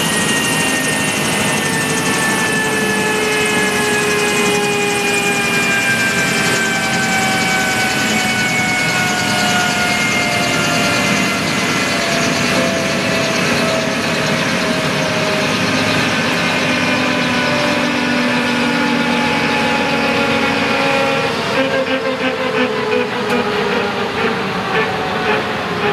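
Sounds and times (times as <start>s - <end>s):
helicopter engines and rotor running: 0.0s - 25.9s.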